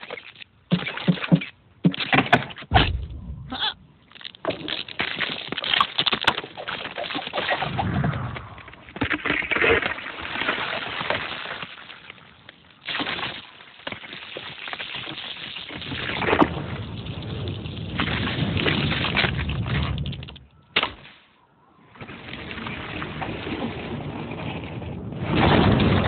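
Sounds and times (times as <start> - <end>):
noisy rumble: 2.7 - 4.1
ice cracking: 4.1 - 21.2.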